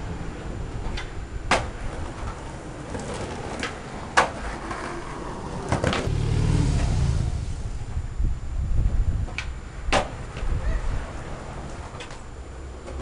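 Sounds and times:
skateboard wheels rolling on concrete: 0.0 - 13.0
skateboard clacking on concrete: 0.9 - 6.1.

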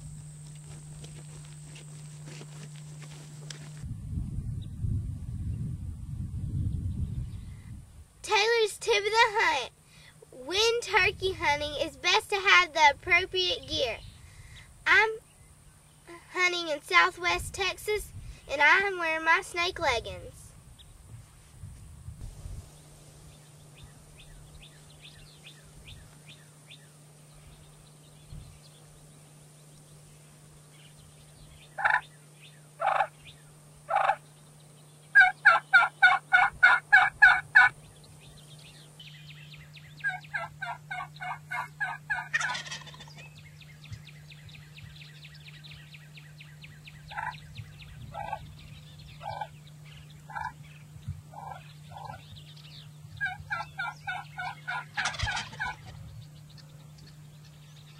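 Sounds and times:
turkey yelping: 31.8 - 32.1, 32.8 - 33.1, 33.9 - 34.2, 35.2 - 37.7, 40.0 - 43.3, 47.1 - 47.4, 48.1 - 48.4, 49.2 - 49.5, 50.3 - 50.6, 51.3 - 52.3, 53.2 - 56.0.

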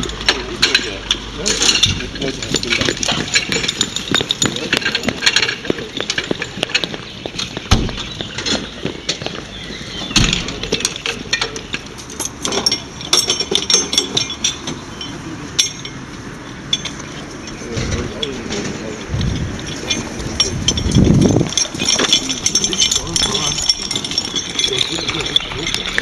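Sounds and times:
metal hose couplings clinking: 0.0 - 26.0
heavy thumps: 1.7 - 11.8.

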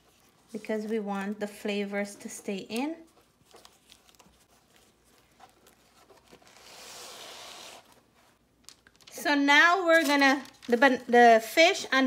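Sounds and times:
leaf rustling and crinkling: 9.8 - 11.0.

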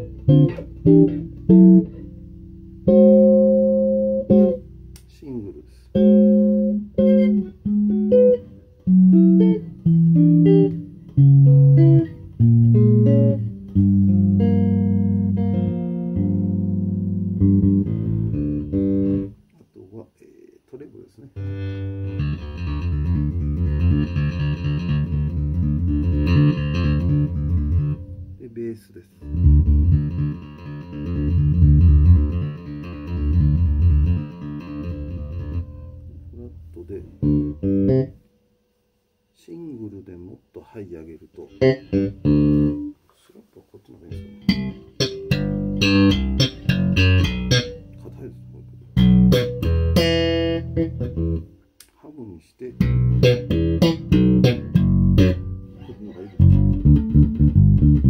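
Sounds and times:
electric bass played fingerstyle: 0.0 - 19.5, 21.4 - 38.4, 41.0 - 43.1, 43.9 - 51.9, 52.6 - 58.0.

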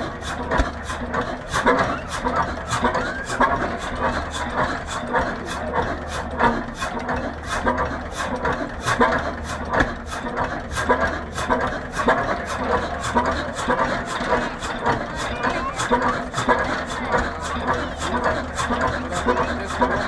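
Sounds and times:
engine knocking: 0.0 - 20.0.

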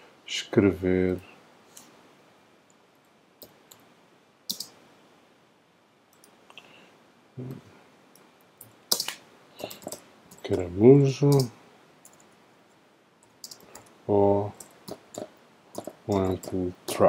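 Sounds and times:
mouse and keyboard clicks: 8.6 - 10.5, 13.4 - 13.9.

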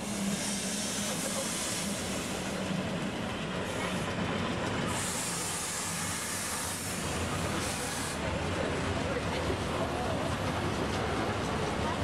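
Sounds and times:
hiss: 0.0 - 2.7, 4.9 - 8.2
train wheels rumbling on rail: 0.0 - 12.0.

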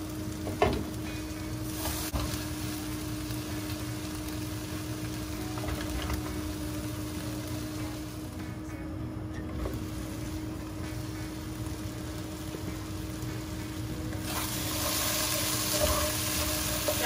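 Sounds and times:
low mechanical hum: 0.0 - 17.0
spatula scraping frying pan: 14.2 - 17.0.

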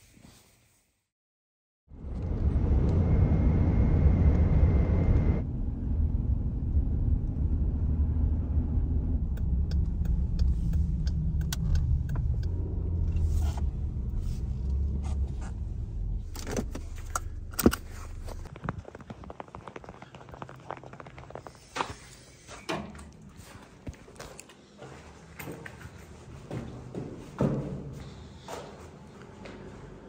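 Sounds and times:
car engine and road noise: 1.9 - 22.0.

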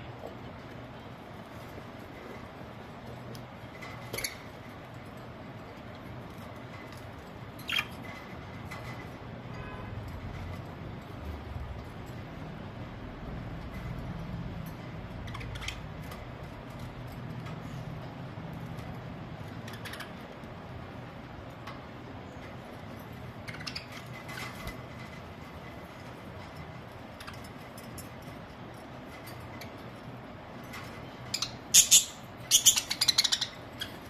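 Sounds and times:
budgerigars chirping and squawking: 7.6 - 8.4, 15.2 - 16.2, 19.5 - 20.5, 23.4 - 24.8, 31.2 - 34.0.

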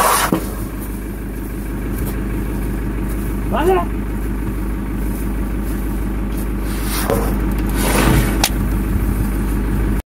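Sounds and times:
engine idling: 0.0 - 10.0
scraping rushes of noise: 6.3 - 8.7.

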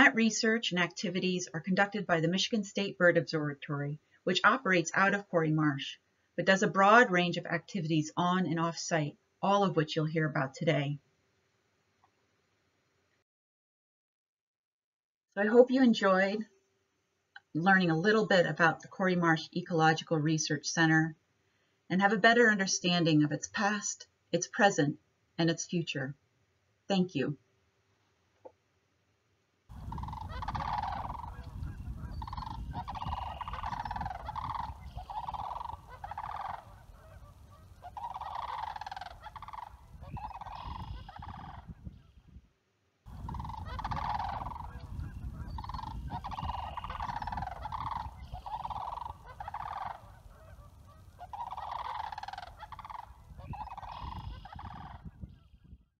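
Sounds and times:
low rumble: 29.7 - 36.1
geese honking: 29.7 - 41.7, 43.1 - 55.1.

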